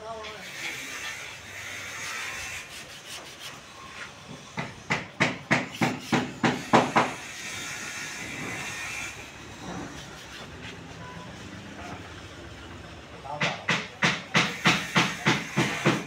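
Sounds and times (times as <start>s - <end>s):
hammer strikes: 4.3s - 7.4s, 13.2s - 16.0s.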